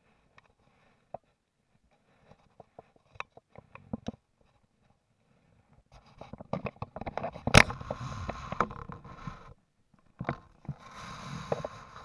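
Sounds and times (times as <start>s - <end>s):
camera handling clicks and rustles: 6.4s - 8.0s.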